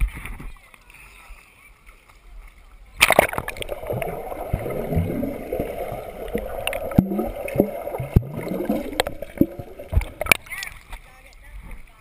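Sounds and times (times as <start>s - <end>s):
bubbly gurgles: 3.0s - 10.6s
underwater churning and bubbling: 3.0s - 10.7s.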